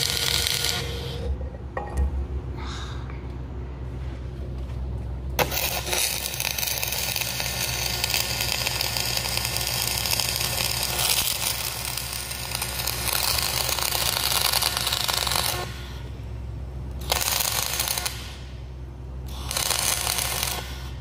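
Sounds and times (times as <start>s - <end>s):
welding arc crackling sizzle: 0.0s - 1.2s, 5.4s - 16.2s, 16.9s - 21.0s
steady low hum: 0.0s - 11.0s, 11.6s - 21.0s.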